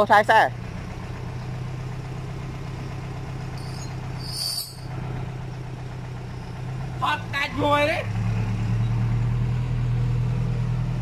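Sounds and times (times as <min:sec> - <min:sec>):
diesel tractor engine idling: 0:00.0 - 0:11.0
high-pitched squeak: 0:03.6 - 0:04.9.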